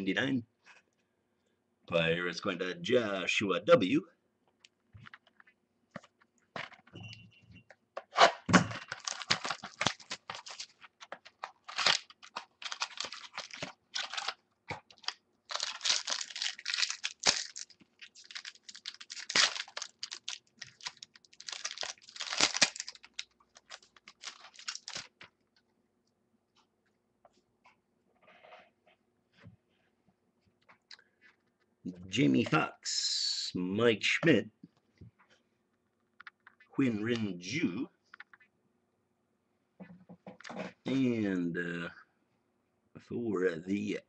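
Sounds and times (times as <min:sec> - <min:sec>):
cards rustling: 0:08.7 - 0:25.3
wrapper crinkling and tearing: 0:08.8 - 0:25.3.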